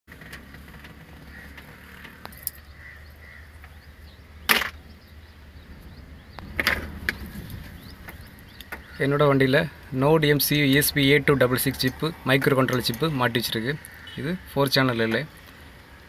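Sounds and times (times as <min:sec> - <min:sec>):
faint low rumble: 0:01.3 - 0:12.4.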